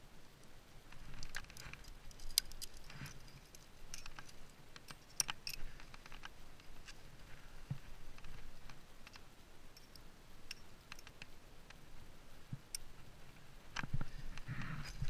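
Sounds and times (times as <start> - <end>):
metal climbing gear clinking: 0.9 - 7.0, 9.0 - 11.3.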